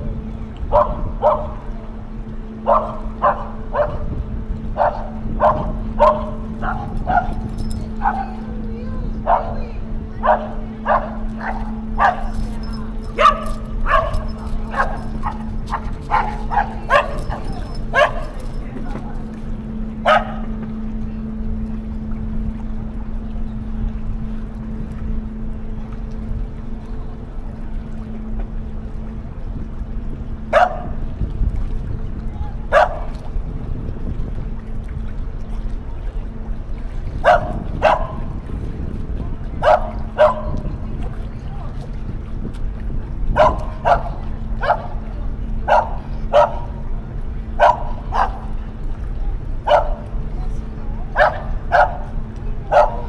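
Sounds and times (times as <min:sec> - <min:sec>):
ship engines droning: 0:00.0 - 0:53.0
steady low hum: 0:00.0 - 0:53.0
dog barking: 0:00.7 - 0:01.6, 0:02.7 - 0:04.0, 0:04.8 - 0:07.4, 0:09.3 - 0:09.6, 0:10.2 - 0:12.4, 0:13.1 - 0:18.4, 0:20.0 - 0:20.5, 0:30.5 - 0:30.9, 0:32.7 - 0:33.2, 0:37.2 - 0:38.2, 0:39.6 - 0:40.6, 0:43.4 - 0:44.9, 0:45.7 - 0:46.7, 0:47.6 - 0:48.5, 0:49.7 - 0:50.0, 0:51.2 - 0:52.0, 0:52.7 - 0:53.0.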